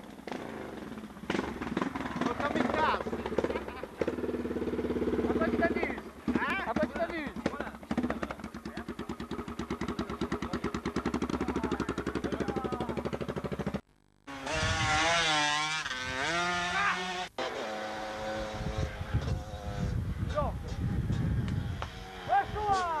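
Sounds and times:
engine ticking over: 0.0s - 13.8s
racing motorcycle passing: 0.0s - 23.0s.

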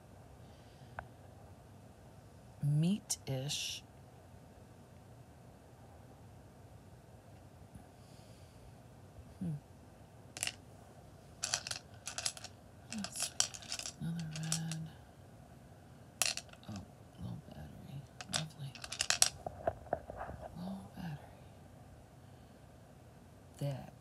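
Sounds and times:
stones clicking together: 11.4s - 14.8s, 16.2s - 16.8s, 18.2s - 19.4s.

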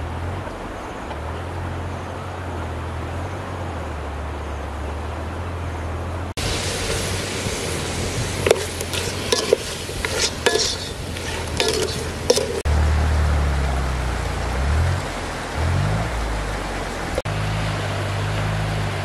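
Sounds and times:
chicken sizzling in a pot: 6.4s - 12.7s
wooden spoon knocking pot: 8.4s - 12.7s.

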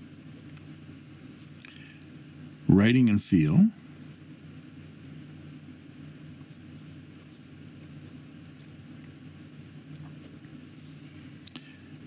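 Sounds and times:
pen nib scratching paper: 0.0s - 0.6s, 3.8s - 10.4s
steady low hum: 0.0s - 12.0s.

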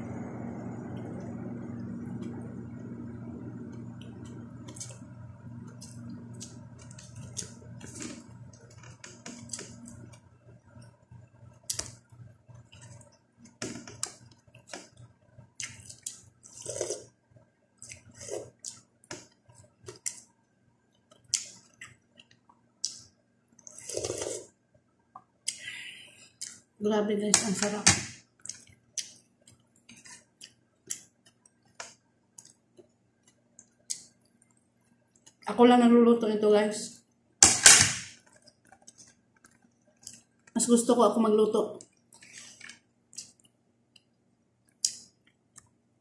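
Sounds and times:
low steady hum: 0.0s - 46.0s
slurping broth from a spoon: 16.4s - 17.1s, 17.9s - 18.8s, 23.7s - 24.5s.

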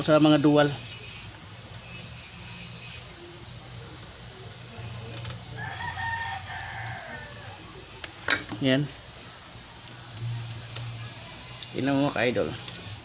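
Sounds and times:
rooster crowing: 4.7s - 8.1s.

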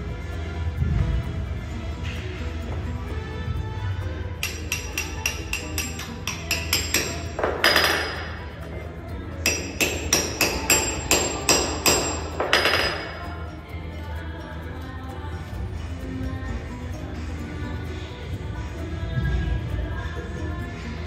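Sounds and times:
hammer striking metal bolts: 4.4s - 8.5s, 9.4s - 13.3s.

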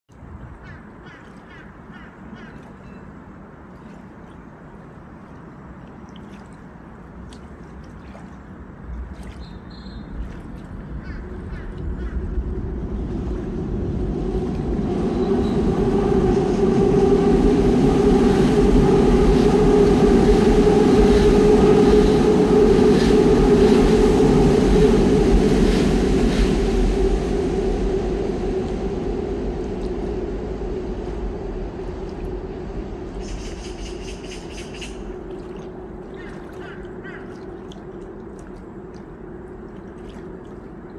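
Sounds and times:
train rumble passing: 9.8s - 40.9s.

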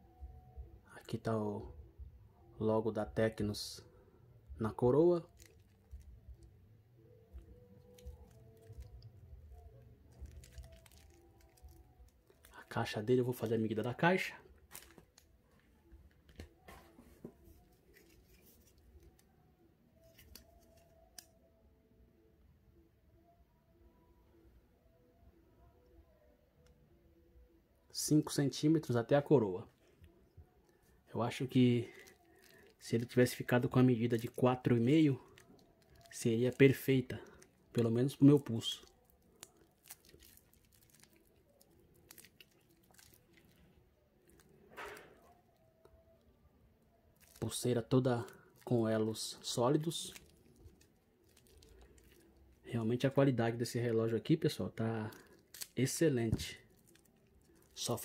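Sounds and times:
plastic wrap crinkling: 4.9s - 6.5s, 7.3s - 19.3s, 20.0s - 21.3s, 30.7s - 45.8s, 47.1s - 58.0s.

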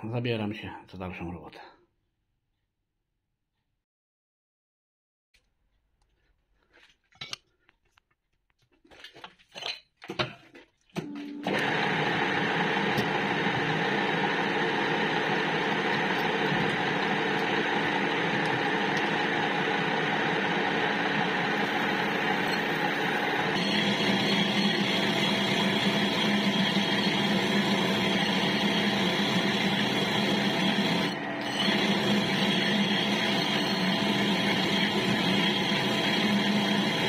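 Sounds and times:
metal lathe running: 11.4s - 37.0s.

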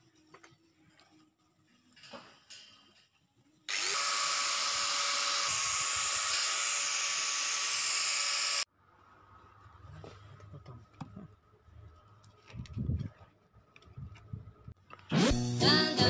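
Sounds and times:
angle grinder cutting steel: 3.7s - 8.7s.

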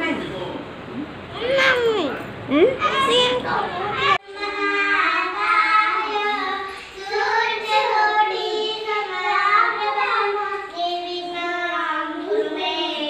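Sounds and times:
children singing a prayer song: 2.9s - 13.0s.

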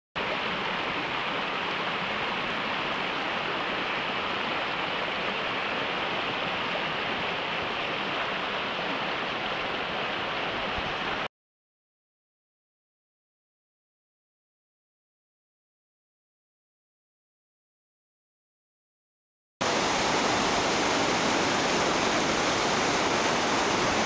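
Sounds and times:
stream rushing over rocks: 0.2s - 11.3s, 19.6s - 24.0s.

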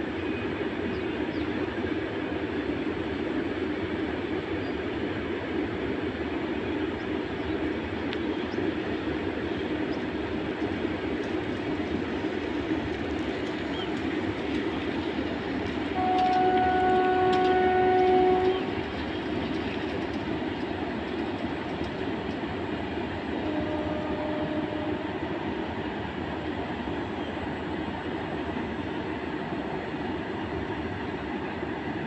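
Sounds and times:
train wagons rumbling and clattering: 0.7s - 32.0s
faint low horn: 16.0s - 18.8s, 23.4s - 25.4s
locomotive horn blast: 16.0s - 18.8s, 23.4s - 25.3s.

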